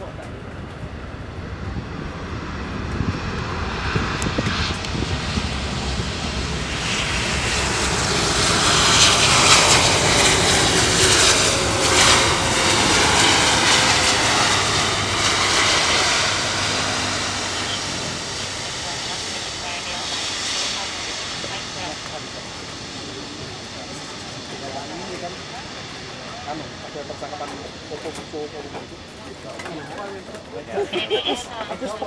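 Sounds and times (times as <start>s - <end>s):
jet engines roaring: 0.0s - 32.0s.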